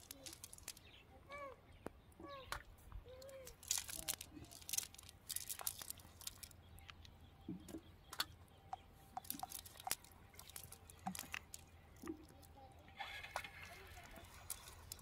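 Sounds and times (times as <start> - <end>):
wet clicks and crackles of net: 0.0 - 1.0, 1.8 - 8.4, 9.2 - 15.0.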